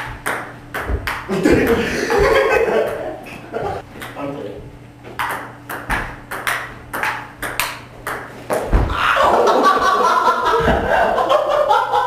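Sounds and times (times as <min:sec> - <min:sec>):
table tennis ball clicking: 0:00.2 - 0:01.3, 0:05.2 - 0:08.3
loud laughter: 0:01.3 - 0:03.8, 0:08.9 - 0:12.0
heavy thump: 0:08.6 - 0:09.0.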